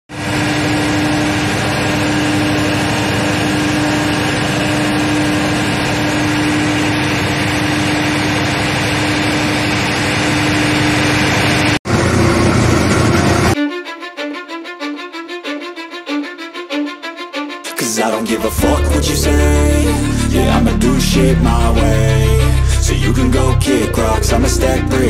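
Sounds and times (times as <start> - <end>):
engine humming: 18.1 - 25.0.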